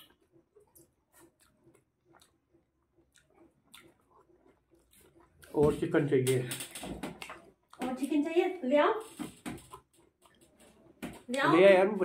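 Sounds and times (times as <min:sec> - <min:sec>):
person chewing: 0:00.0 - 0:06.1, 0:07.1 - 0:07.8, 0:09.4 - 0:11.6
wet squishing of food mixed by hand: 0:00.0 - 0:06.2.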